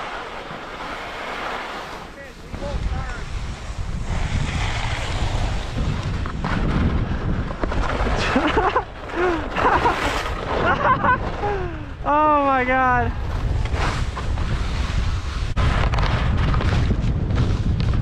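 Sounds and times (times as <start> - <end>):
wind buffeting microphone: 1.9 - 18.0.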